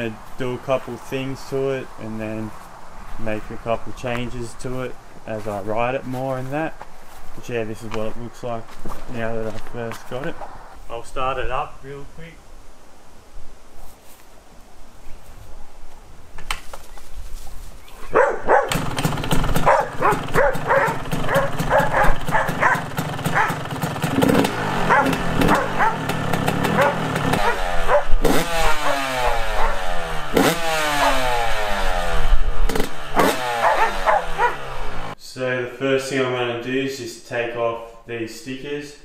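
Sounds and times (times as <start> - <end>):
two-stroke engine starting and revving: 18.4 - 35.2.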